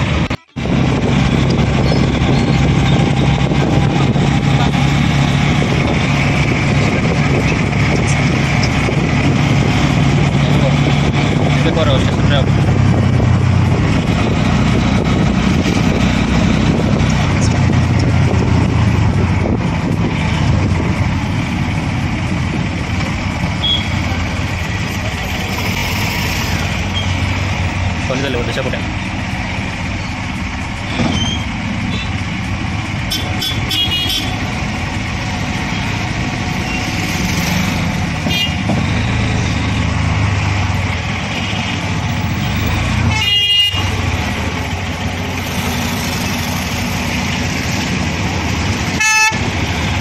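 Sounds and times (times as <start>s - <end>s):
wind noise: 0.0s - 25.0s
auto-rickshaw engine running: 0.0s - 50.0s
road noise: 0.0s - 50.0s.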